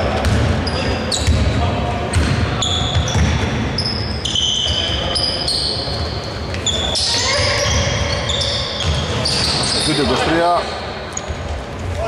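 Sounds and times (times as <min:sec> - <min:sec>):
sneakers squeaking on floor: 0:00.0 - 0:12.0
basketball bouncing: 0:00.1 - 0:03.8, 0:07.3 - 0:09.6.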